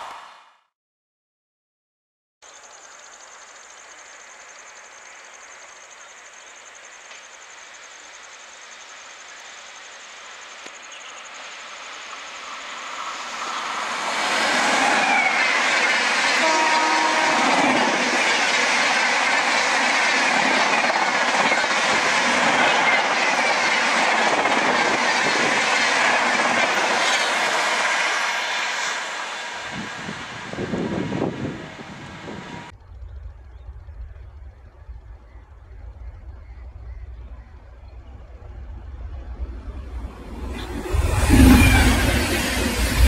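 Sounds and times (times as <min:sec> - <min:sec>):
train rushing past: 0:11.0 - 0:43.0
train horn note: 0:16.3 - 0:18.1.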